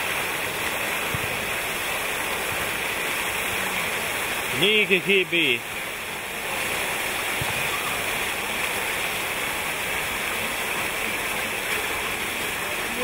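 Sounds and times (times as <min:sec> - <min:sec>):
fountain water splashing: 0:00.0 - 0:13.0.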